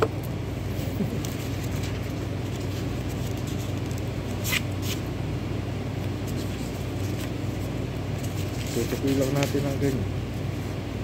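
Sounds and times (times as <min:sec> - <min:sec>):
low background hum: 0:00.0 - 0:11.0
paper filter crinkling: 0:00.8 - 0:05.0, 0:06.2 - 0:10.0.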